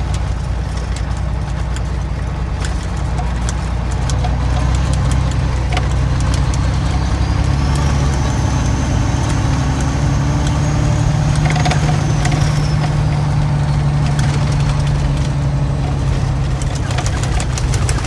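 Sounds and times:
clicks and rattles: 0.0 - 18.0
truck engine running: 0.0 - 18.0.

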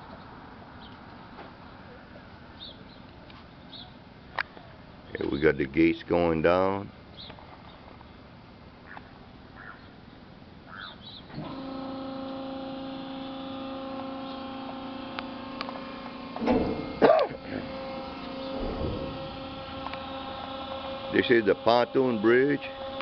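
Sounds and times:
hydraulic pump motor humming: 11.3 - 23.0.

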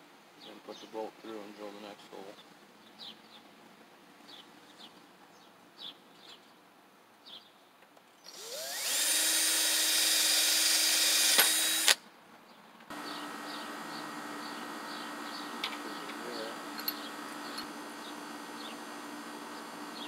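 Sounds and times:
cordless drill boring metal: 8.3 - 12.0, 12.9 - 20.0.

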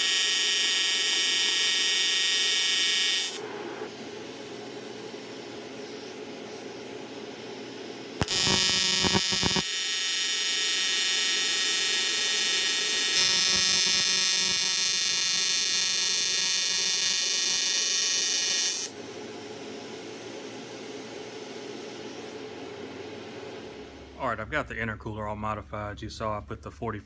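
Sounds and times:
welding arc buzzing: 0.0 - 7.3, 8.1 - 19.0.

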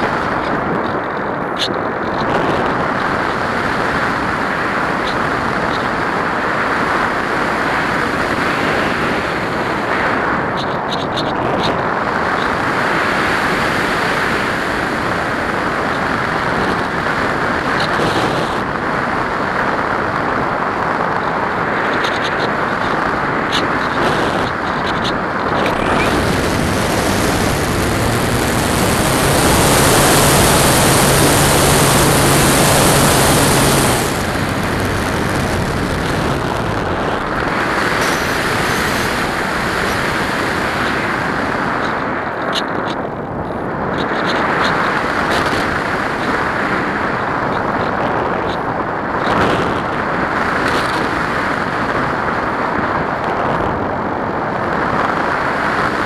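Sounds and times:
wind rushing over camera: 0.0 - 56.0
propeller motor humming: 12.0 - 44.4.

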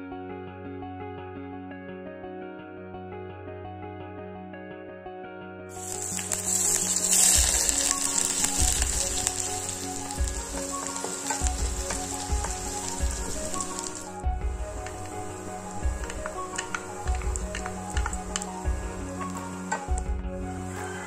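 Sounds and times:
onion sizzling in hot oil: 5.7 - 21.0.

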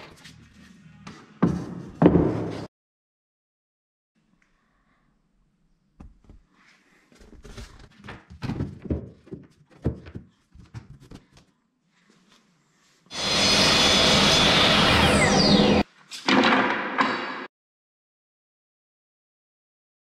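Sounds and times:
miter saw motor running: 13.1 - 15.8.

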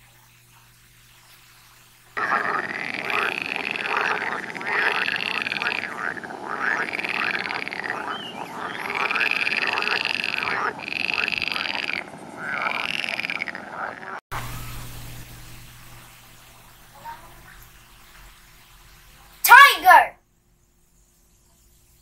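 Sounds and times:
frogs croaking: 2.2 - 14.2.

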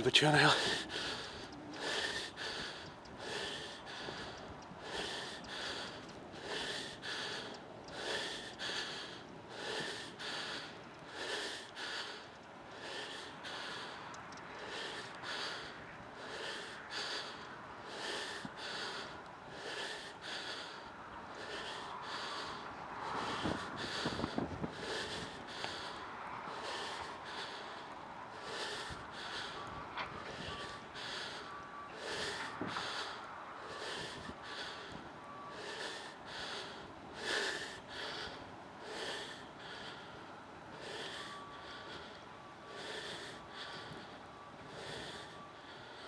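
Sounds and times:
person breathing hard: 0.0 - 46.0.

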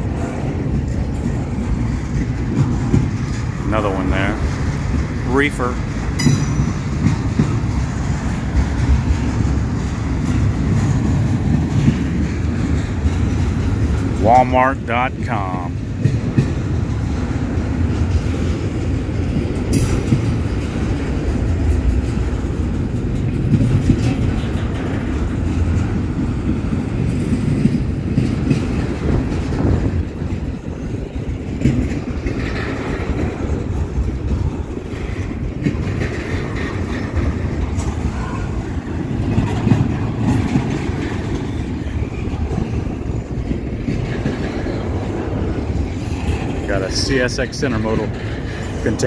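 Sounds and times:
train wheels clacking: 0.0 - 49.0
train wheels rumbling on rails: 0.0 - 49.0.

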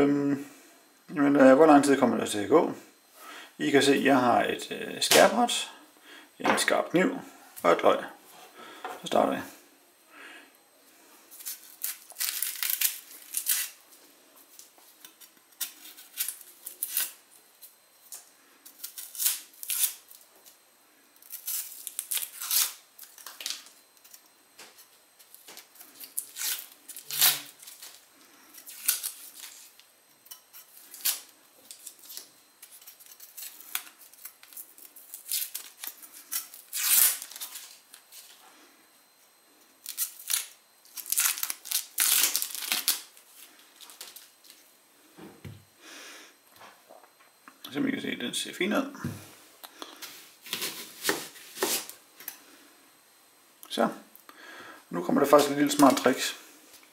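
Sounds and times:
onion skin crackling and tearing: 11.3 - 13.8, 14.5 - 20.6, 21.2 - 24.3, 25.2 - 38.4, 39.8 - 44.6.

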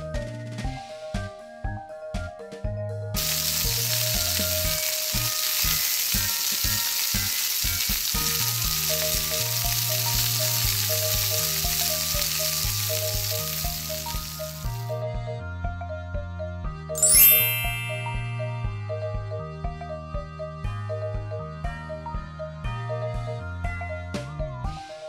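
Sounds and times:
cheerful background music: 0.0 - 25.0
food sizzling in a pan: 3.2 - 14.9, 17.0 - 18.6.

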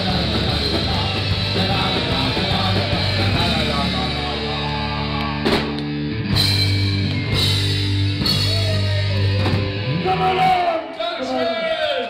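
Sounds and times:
rock band sustained chord: 0.0 - 10.7
drum hits: 5.4 - 9.9.

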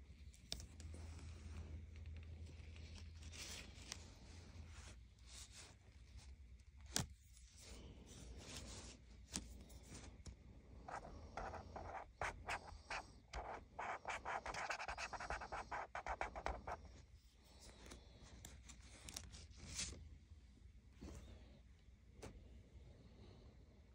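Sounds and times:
marker scribbling on paper: 10.9 - 16.8.

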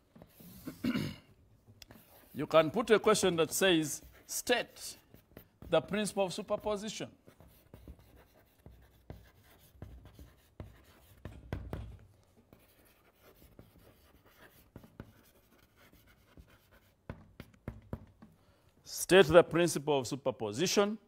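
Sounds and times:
pen scratching on paper: 0.1 - 0.9, 1.8 - 17.8.

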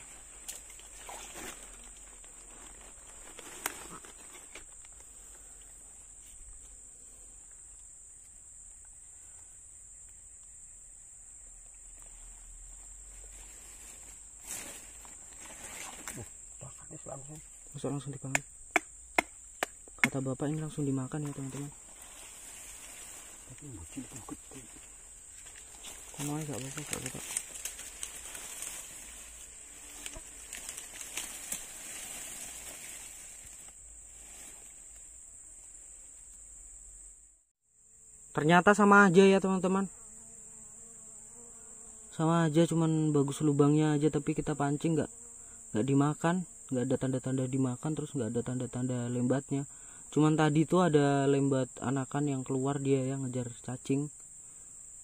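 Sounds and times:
insects shrilling: 0.0 - 37.1.

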